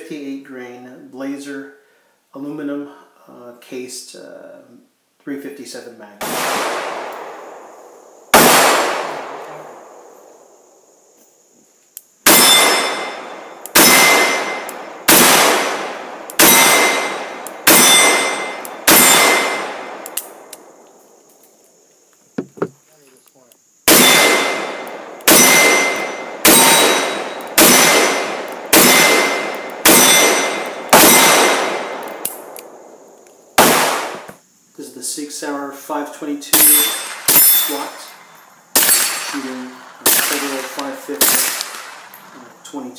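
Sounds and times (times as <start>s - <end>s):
revolver gunshots: 6.2s - 10.4s, 12.2s - 20.8s, 23.9s - 32.9s, 33.5s - 34.3s, 38.7s - 42.3s
steel plate ringing: 16.4s - 19.6s, 25.3s - 27.9s.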